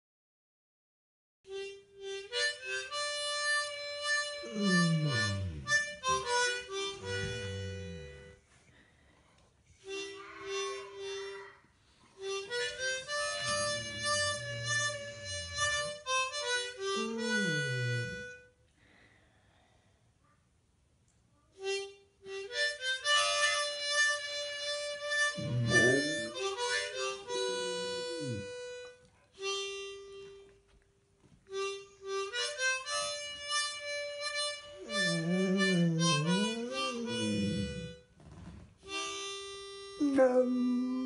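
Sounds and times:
harmonica chords: 0:01.5 - 0:08.6, 0:09.8 - 0:18.6, 0:21.6 - 0:30.8, 0:31.5 - 0:38.1, 0:38.8 - 0:41.0
dog howling: 0:04.4 - 0:05.8, 0:13.1 - 0:15.9, 0:16.8 - 0:18.2, 0:25.4 - 0:28.6, 0:34.8 - 0:38.0, 0:40.0 - 0:41.0.

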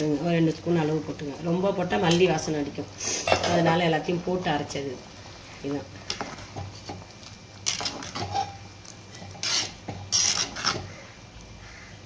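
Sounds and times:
spoon scraping clay pot: 0:07.6 - 0:10.9.

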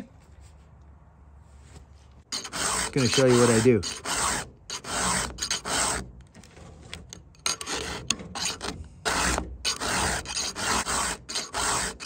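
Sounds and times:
file rasping on chain teeth: 0:02.3 - 0:06.1, 0:07.4 - 0:12.0.

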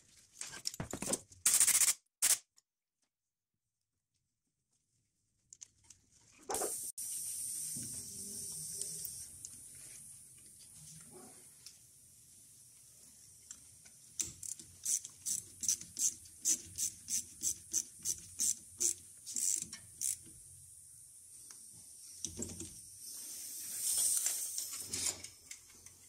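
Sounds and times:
ratchet wrench clicking: 0:01.5 - 0:02.4, 0:14.2 - 0:20.3.

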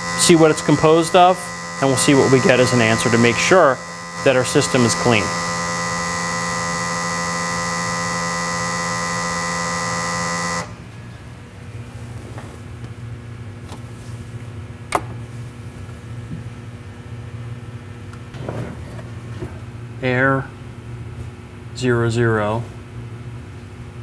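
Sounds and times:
low hum: 0:00.0 - 0:12.1
pump electric buzz: 0:00.0 - 0:12.2.

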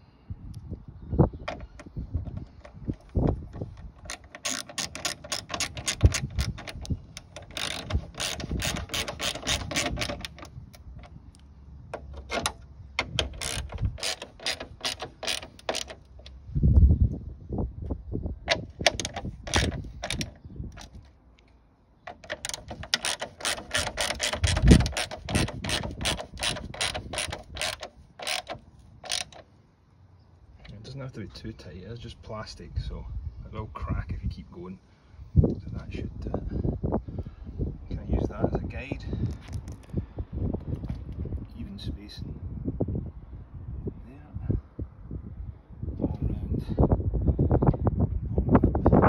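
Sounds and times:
hand ratchet clicking: 0:01.5 - 0:11.1, 0:12.0 - 0:16.3, 0:18.5 - 0:21.0, 0:22.1 - 0:29.4.

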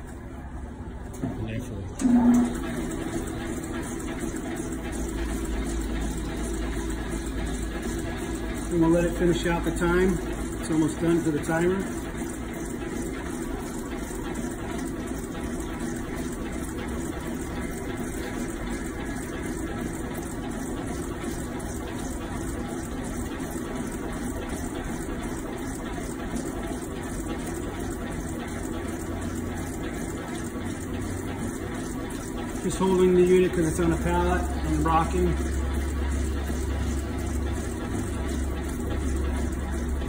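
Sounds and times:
mixer motor whirring: 0:00.0 - 0:40.0.

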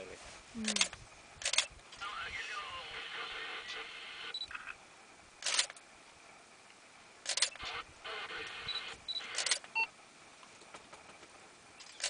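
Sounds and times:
camera shutters clicking: 0:00.7 - 0:01.7, 0:05.4 - 0:05.8, 0:07.2 - 0:07.8, 0:08.4 - 0:09.8.

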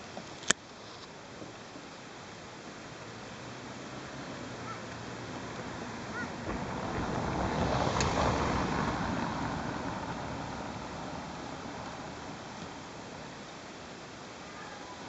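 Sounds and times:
road vehicle passing: 0:02.8 - 0:14.4.

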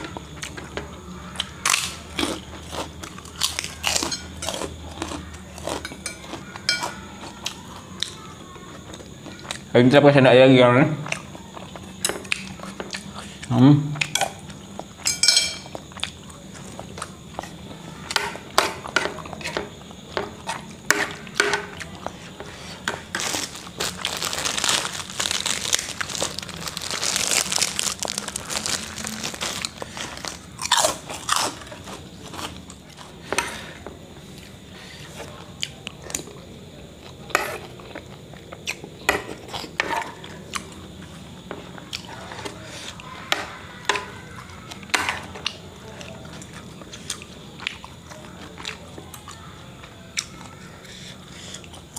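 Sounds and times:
chewing: 0:00.1 - 0:09.7, 0:11.0 - 0:43.3, 0:43.9 - 0:51.9
crunchy snack bites: 0:01.2 - 0:09.7, 0:23.0 - 0:33.1.

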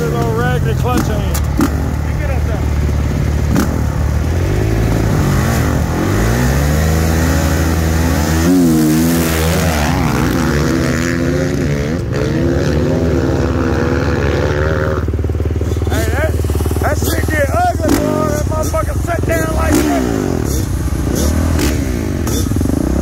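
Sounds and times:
dirt bike engines revving: 0:00.0 - 0:23.0.

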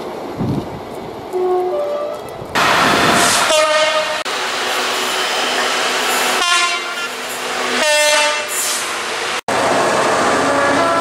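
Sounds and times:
freight train passing: 0:00.0 - 0:11.0
locomotive horn blasts: 0:03.5 - 0:04.3, 0:06.4 - 0:07.2, 0:07.8 - 0:08.6, 0:10.4 - 0:11.0.

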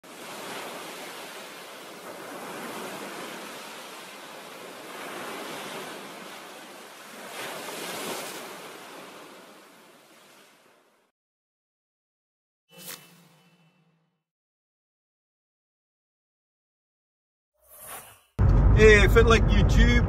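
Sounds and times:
ocean waves washing in: 0:00.0 - 0:11.1.

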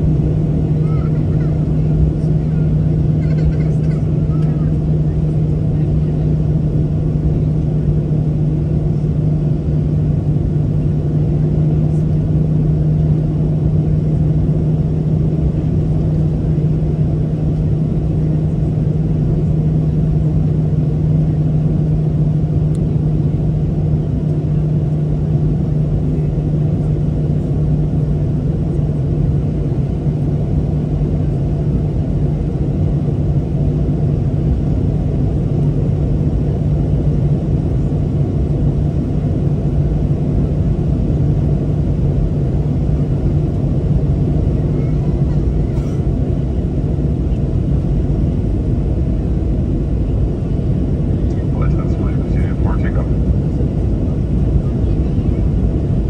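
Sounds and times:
jet engine drone in cabin: 0:00.0 - 0:56.0.

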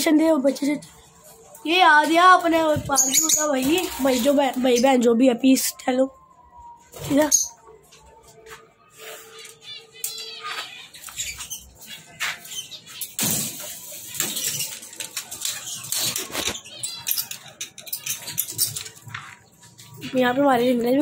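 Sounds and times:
parrots chirping and calling: 0:02.8 - 0:04.9, 0:09.0 - 0:20.0.

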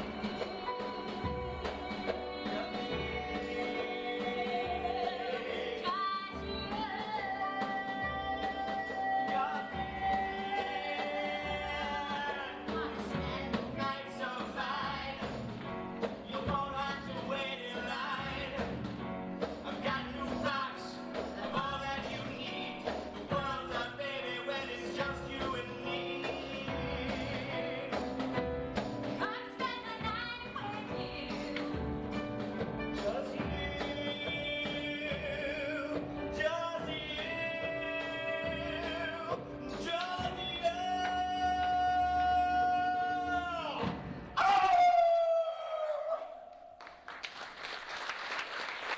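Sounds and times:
person singing: 0:00.0 - 0:15.3
rock band playing: 0:00.0 - 0:44.3
drum and cymbal hits: 0:24.6 - 0:41.8.

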